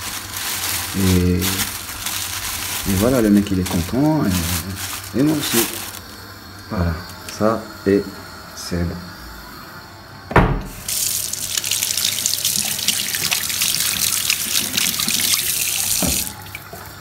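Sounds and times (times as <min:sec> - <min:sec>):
tap water running into sink: 0:10.9 - 0:16.9.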